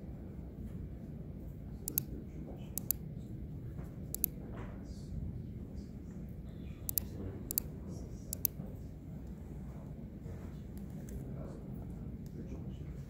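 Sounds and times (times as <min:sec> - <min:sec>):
low room hum: 0:00.0 - 0:13.0
computer mouse clicking: 0:01.9 - 0:02.1, 0:02.8 - 0:03.0, 0:04.1 - 0:04.4, 0:06.9 - 0:07.7, 0:08.3 - 0:08.6.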